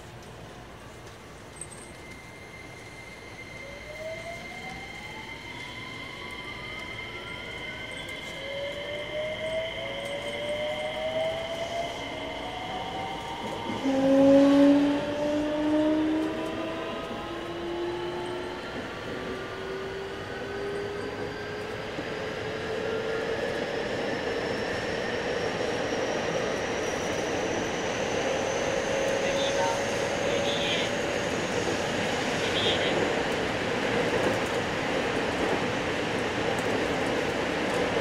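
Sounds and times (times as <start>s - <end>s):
train wheel and running noise: 0.0s - 38.0s
electric train motor whine rising: 1.9s - 22.6s
high steady whine: 29.2s - 31.0s, 32.1s - 33.0s.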